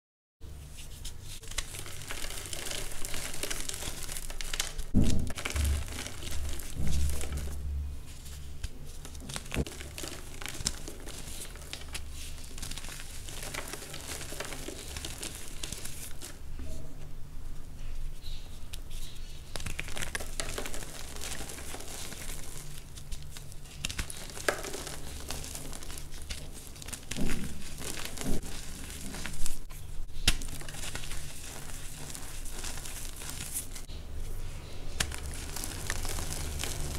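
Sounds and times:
powder crumbling between fingers: 1.4s - 7.6s, 8.6s - 16.4s, 19.4s - 29.6s, 30.3s - 33.9s, 34.9s - 36.9s
powder block crunching: 1.6s - 7.6s, 9.2s - 16.4s, 23.9s - 29.7s, 35.0s - 36.9s.

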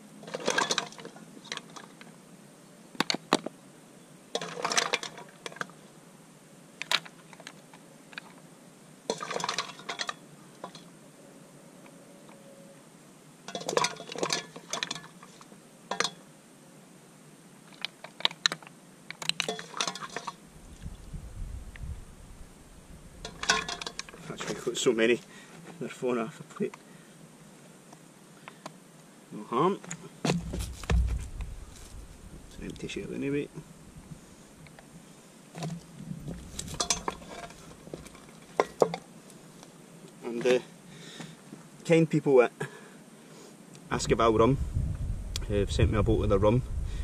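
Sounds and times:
low rumble: 20.6s - 23.2s, 30.5s - 33.2s
mussel shells clinking on metal: 23.2s - 24.2s, 36.7s - 39.0s.

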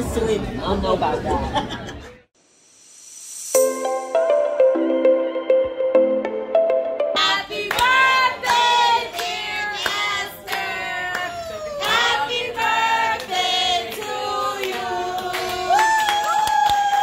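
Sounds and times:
voices singing together: 7.2s - 16.1s
hand claps: 7.7s - 12.1s, 13.2s - 17.0s.

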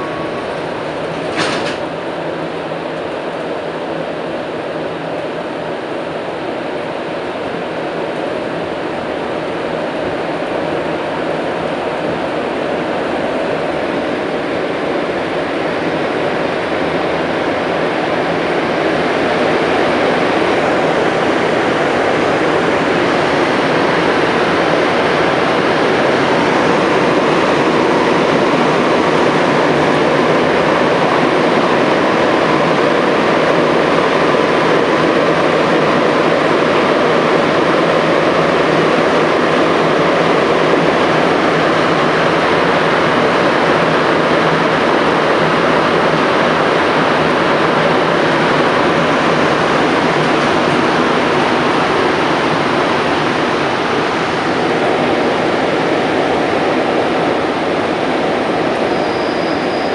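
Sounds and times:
metro train running in tunnel: 0.0s - 59.9s.

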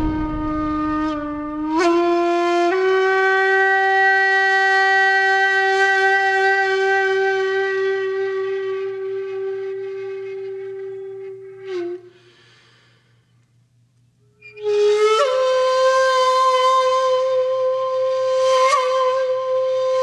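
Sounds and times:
long wind instrument note: 0.0s - 2.2s.

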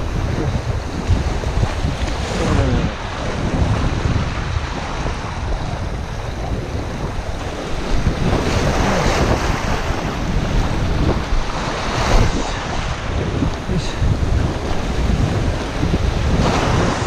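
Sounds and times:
waves breaking over rocks: 0.0s - 17.0s
wind buffeting microphone: 0.0s - 17.0s.

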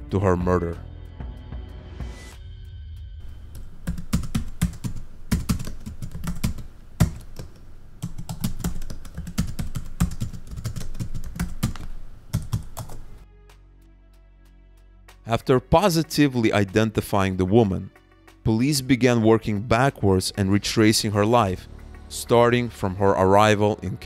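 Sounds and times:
keyboard typing: 3.2s - 13.2s.

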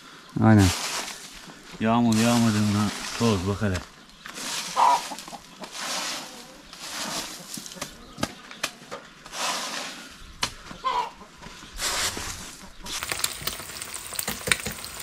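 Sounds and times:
broom sweeping dirt path: 0.0s - 8.2s, 9.1s - 13.1s
chicken clucking: 4.6s - 8.9s, 10.6s - 13.0s
food sizzling in a pan: 12.9s - 15.0s.

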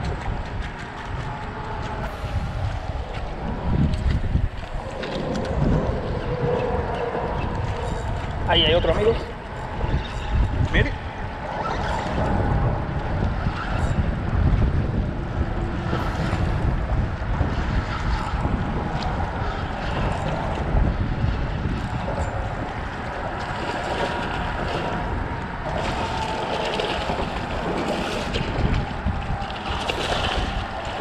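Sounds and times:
wind buffeting microphone: 0.0s - 31.0s
water lapping at rocks: 15.8s - 31.0s.

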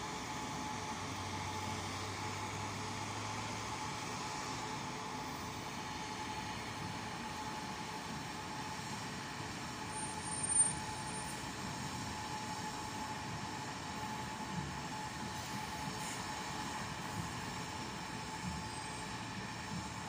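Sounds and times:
buses and cars moving: 0.0s - 20.0s
brief high squeal: 10.0s - 11.4s.

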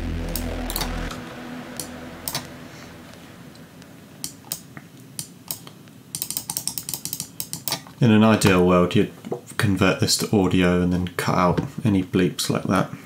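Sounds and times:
deep synth pad: 0.0s - 4.8s.

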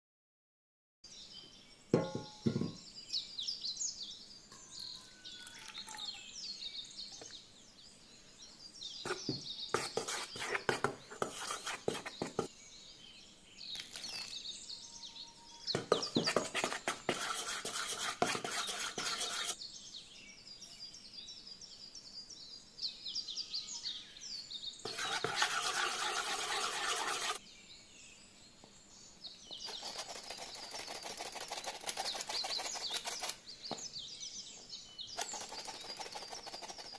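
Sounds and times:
small birds chirping: 1.1s - 36.9s
rustling scraping noise: 9.1s - 12.5s, 15.8s - 19.6s, 24.9s - 27.4s, 35.2s - 36.9s.

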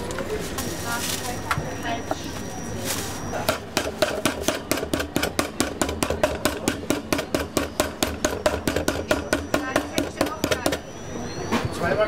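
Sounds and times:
meat pounder striking meat: 3.5s - 10.9s.

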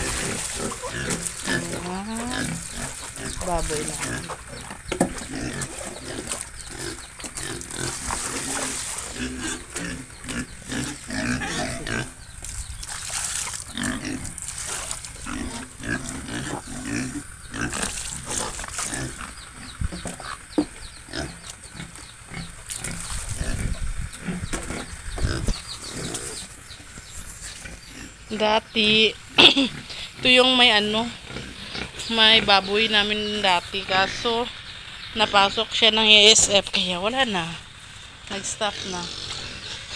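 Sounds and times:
piglets grunting: 0.0s - 12.4s, 13.7s - 26.5s, 27.4s - 32.7s, 38.6s - 39.9s.

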